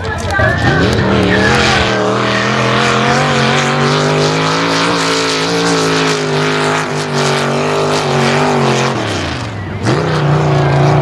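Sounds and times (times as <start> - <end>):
truck engine at high revs: 0.0 - 11.0.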